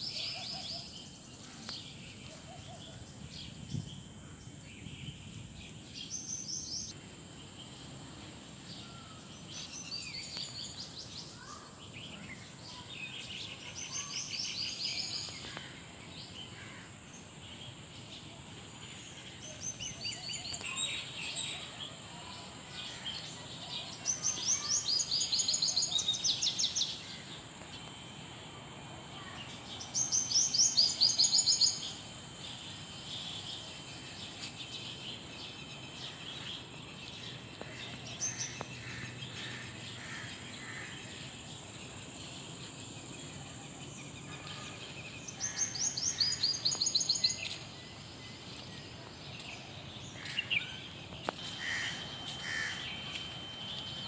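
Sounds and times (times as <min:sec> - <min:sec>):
birds chirping and singing: 0:19.0 - 0:27.4, 0:29.2 - 0:54.0.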